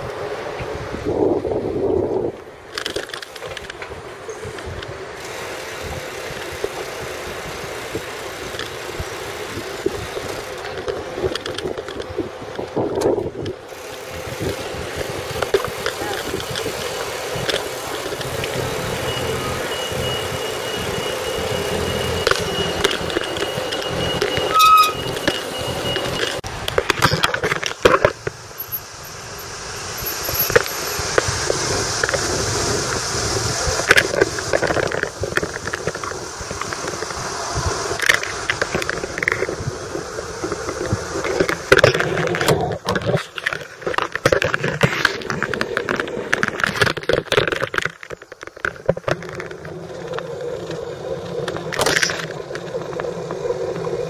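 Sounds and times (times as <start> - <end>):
bicycle tyres and wind rushing: 0.0 - 54.0
bicycle frame rattling: 2.6 - 28.8
thin squeal: 19.0 - 26.4.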